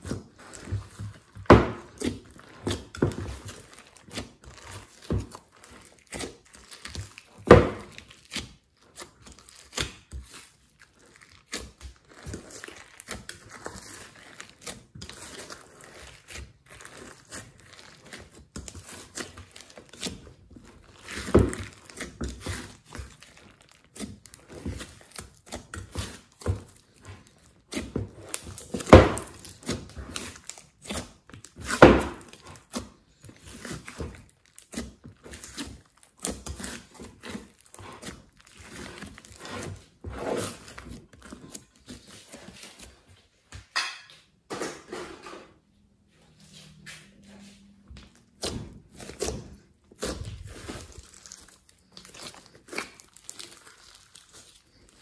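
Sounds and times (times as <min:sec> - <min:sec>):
slime popping and crackling: 0:00.0 - 0:42.4, 0:48.3 - 0:55.0
slime squishing: 0:00.0 - 0:43.5, 0:47.5 - 0:55.0.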